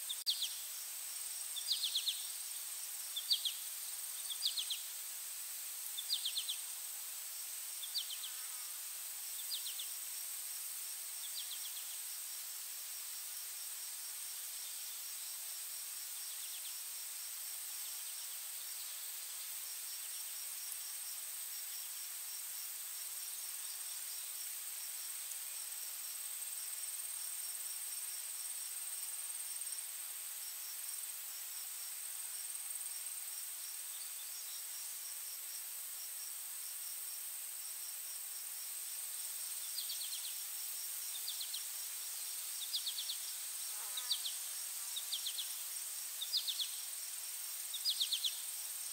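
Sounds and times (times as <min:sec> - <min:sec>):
short insect chirps: 0:00.0 - 0:10.3, 0:30.6 - 0:48.9
insects droning and pulsing: 0:00.0 - 0:48.9.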